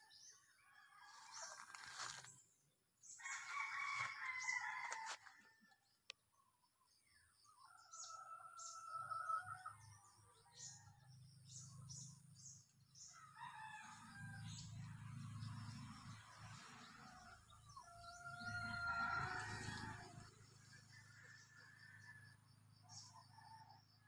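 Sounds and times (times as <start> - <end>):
rooster crowing: 3.2 - 5.6, 17.8 - 20.3.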